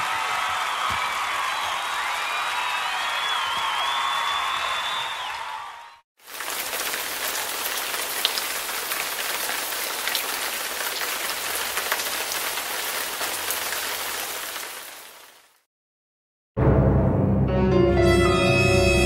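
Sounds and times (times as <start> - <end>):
rain-like hiss with crackles: 6.2 - 15.7.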